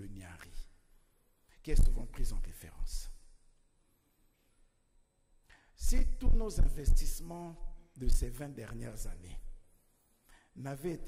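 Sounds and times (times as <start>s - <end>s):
man's amplified voice: 0.0s - 0.7s, 1.5s - 3.2s, 5.8s - 9.6s, 10.6s - 11.0s.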